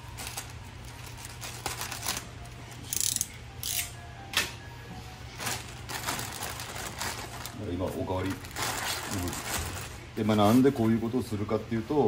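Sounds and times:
plastic bag crinkling: 0:00.0 - 0:02.5, 0:05.3 - 0:10.7.

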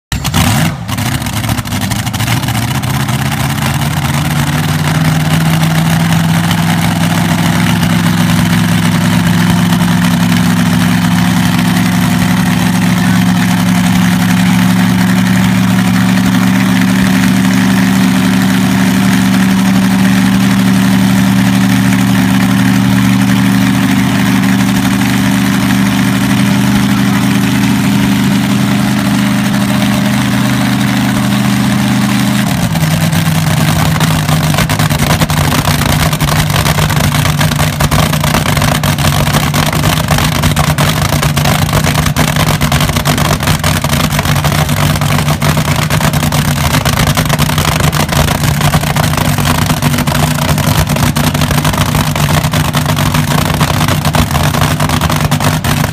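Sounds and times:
dragster engine idling loudly: 0:00.1 - 0:55.9.

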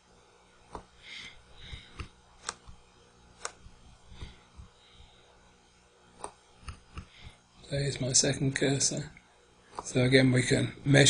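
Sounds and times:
computer mouse clicks: 0:01.7 - 0:02.8, 0:03.4 - 0:03.6.

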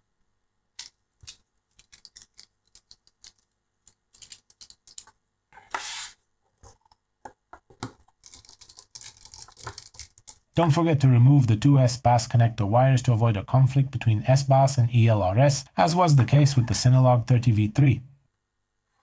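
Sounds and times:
small clicks and taps of parts: 0:00.8 - 0:05.2, 0:06.6 - 0:10.4.

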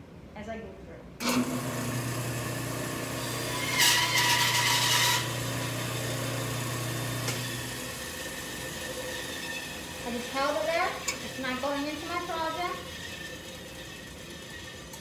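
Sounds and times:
band saw motor hum: 0:01.2 - 0:15.0
saw blade cutting wood: 0:03.6 - 0:05.3.

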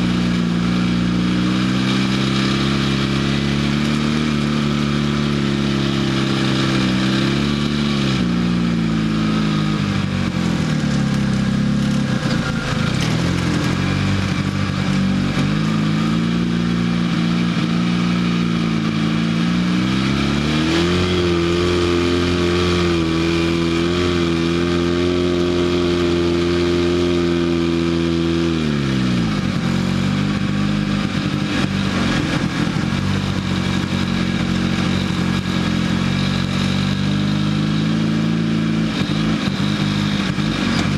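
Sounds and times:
off-road vehicle engine: 0:00.0 - 0:40.9.

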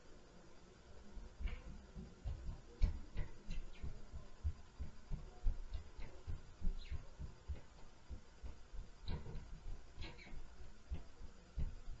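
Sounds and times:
footsteps thudding through ceiling: 0:01.2 - 0:12.0.

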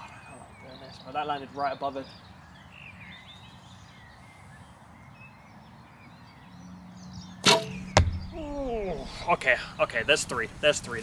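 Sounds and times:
birds calling: 0:00.0 - 0:11.0
bow shot snap: 0:07.4 - 0:09.3.

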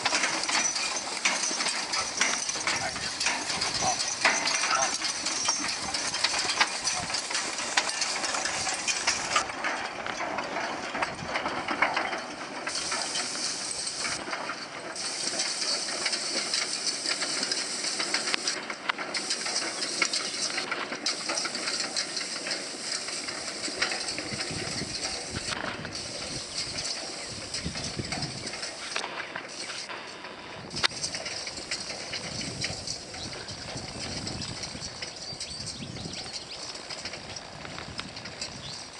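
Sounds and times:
harness chains jingling: 0:00.0 - 0:30.2, 0:30.9 - 0:38.9
hooves: 0:00.0 - 0:38.9
rake tines clattering: 0:00.0 - 0:38.9
hay rake hiss and swish: 0:12.7 - 0:14.2, 0:15.0 - 0:18.6.

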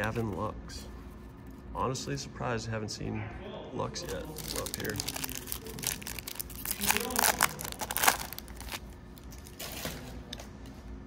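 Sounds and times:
wrapper crinkling and tearing: 0:04.0 - 0:09.9.

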